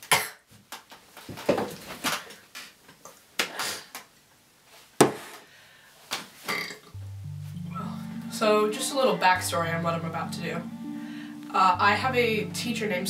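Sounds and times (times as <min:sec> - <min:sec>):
knocks and clatters of objects: 0:00.6 - 0:02.3.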